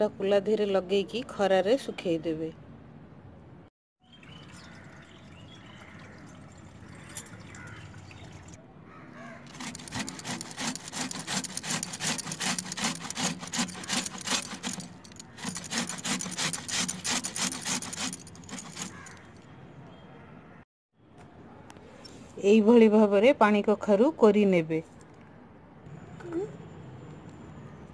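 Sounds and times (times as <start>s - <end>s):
grating on metal grater: 9.5s - 19.3s.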